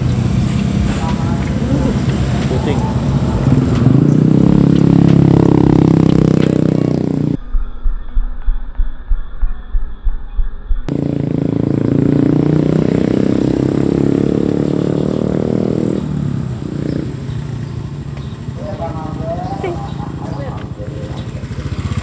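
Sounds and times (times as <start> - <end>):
motorcycle engine running: 0.0 - 7.4, 10.9 - 22.0.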